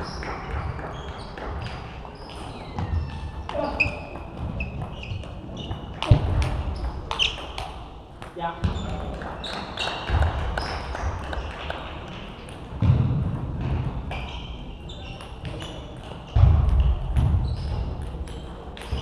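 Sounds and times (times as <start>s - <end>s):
table tennis balls clicking: 0.0s - 12.8s.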